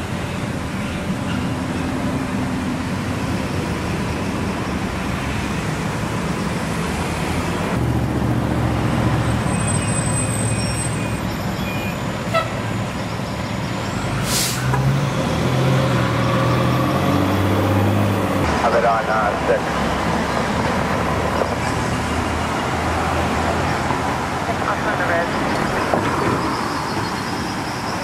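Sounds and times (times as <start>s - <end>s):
air-brake hiss: 14.2s - 14.8s.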